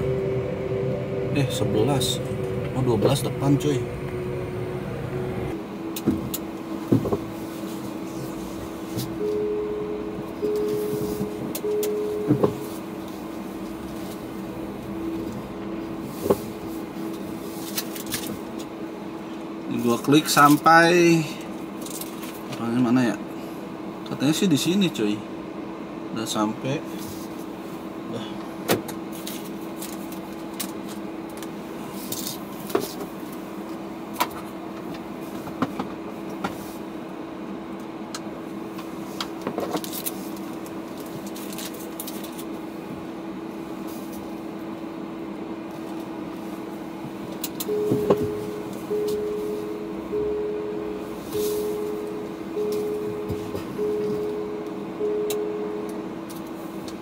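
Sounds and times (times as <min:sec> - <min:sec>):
car cabin hum: 0:00.0 - 0:20.8, 0:32.5 - 0:57.0
electronic chime beeping: 0:09.2 - 0:12.8, 0:47.7 - 0:56.1.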